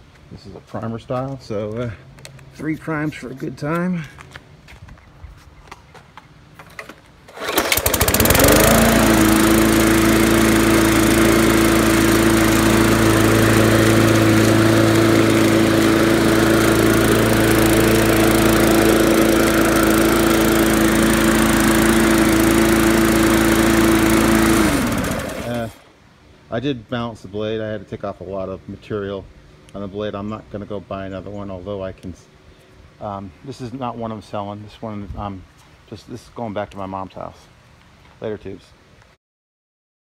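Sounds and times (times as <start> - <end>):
engine cranking rattle: 7.3 - 8.9
lawn mower engine running: 7.3 - 25.8.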